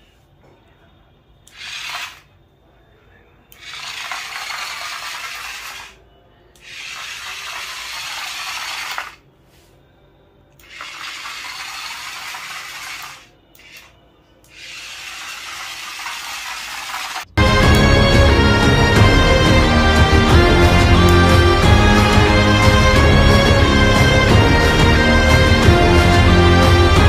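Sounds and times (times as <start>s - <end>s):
toy motor whirring: 1.5s - 2.3s, 3.5s - 6.0s, 6.6s - 9.2s, 10.6s - 17.3s.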